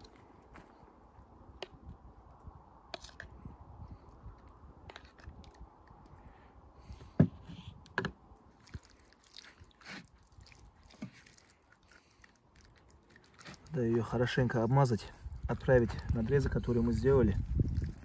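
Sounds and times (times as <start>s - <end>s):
wet squelching of hands on chicken: 8.5s - 14.0s.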